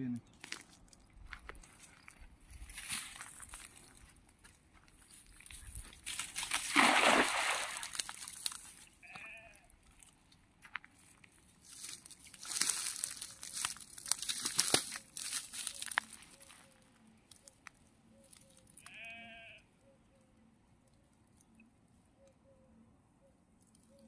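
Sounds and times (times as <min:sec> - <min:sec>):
wet net rustling: 0:05.9 - 0:08.8
net splashing on water: 0:06.0 - 0:08.6.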